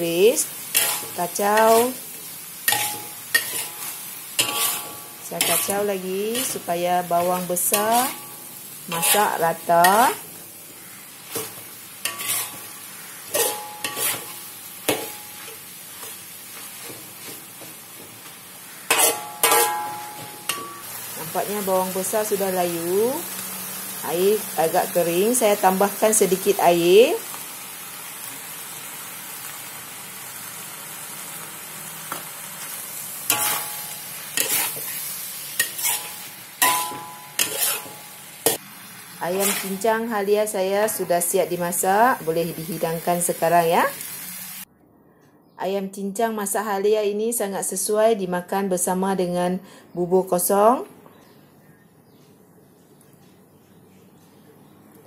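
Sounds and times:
food sizzling: 0.0 - 44.7
metal spatula scraping wok: 0.4 - 22.9, 33.2 - 38.6, 39.2 - 42.8.

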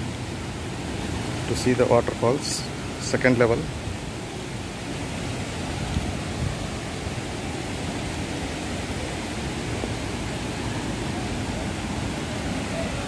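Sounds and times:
waterfall roaring: 0.0 - 13.0.

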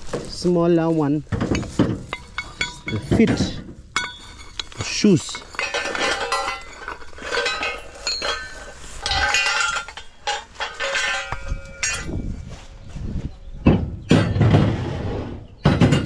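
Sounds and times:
metal plates clinking and knocking: 1.3 - 12.3, 13.6 - 14.9, 15.6 - 16.0
heavy dull thuds: 11.3 - 15.1.

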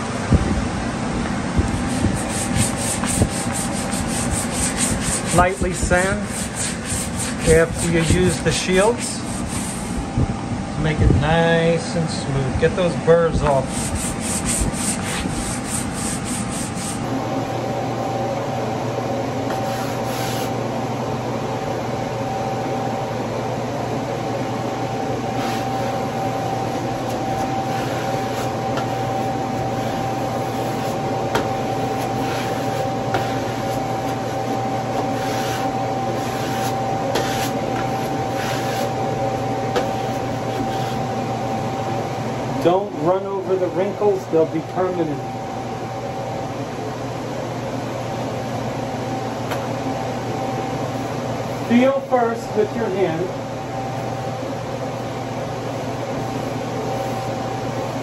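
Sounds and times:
fan hum: 0.0 - 58.0
sanding strokes on a wall: 1.8 - 10.0, 13.6 - 17.0, 19.5 - 20.6, 25.4 - 31.0, 31.6 - 39.0, 39.8 - 41.0.

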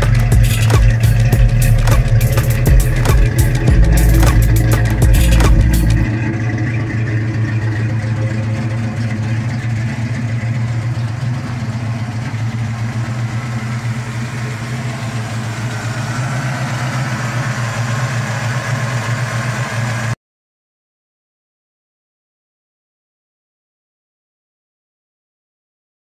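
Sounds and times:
car engine idling: 0.0 - 20.2.

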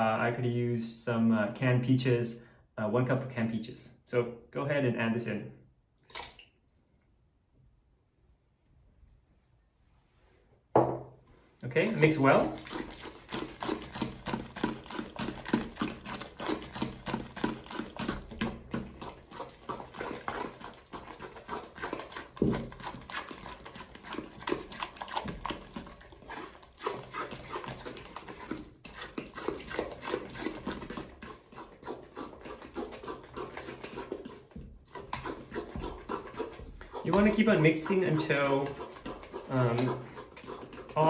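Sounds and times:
batter stirred in metal bowl: 11.6 - 41.0.

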